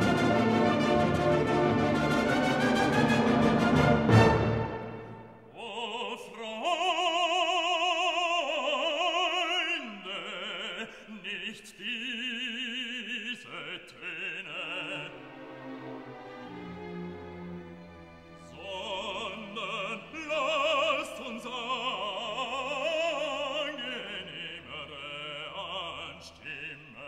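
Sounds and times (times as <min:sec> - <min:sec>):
orchestral chord: 0:00.0 - 0:05.4
operatic singing: 0:00.0 - 0:27.0.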